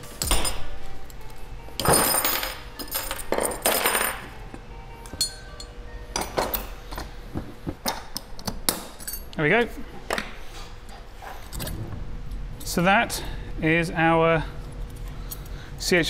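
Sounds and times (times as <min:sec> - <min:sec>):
metal clinks and knocks: 0:00.0 - 0:07.1, 0:07.8 - 0:09.4.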